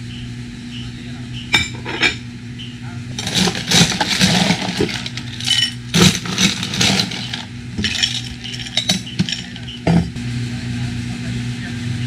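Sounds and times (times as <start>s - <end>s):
glassware clinking: 1.5s - 2.2s, 3.2s - 10.2s.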